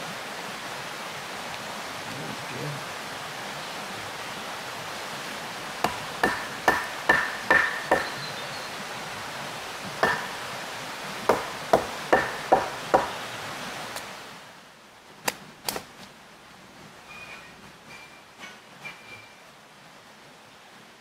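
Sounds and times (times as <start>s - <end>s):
running water: 0.0s - 21.0s
hammer blows ringing: 5.9s - 8.3s, 10.0s - 10.4s, 11.3s - 13.2s.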